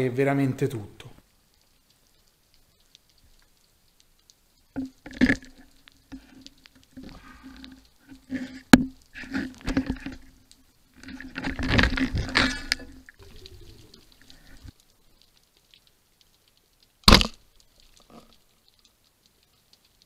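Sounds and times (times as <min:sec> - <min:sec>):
underwater scraping against speargun: 0:05.1 - 0:10.3, 0:11.0 - 0:14.0.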